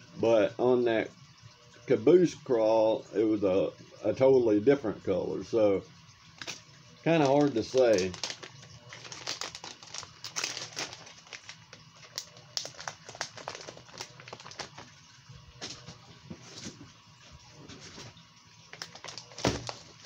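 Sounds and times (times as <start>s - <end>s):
plastic packs crinkling: 6.4s - 16.9s, 18.7s - 20.0s.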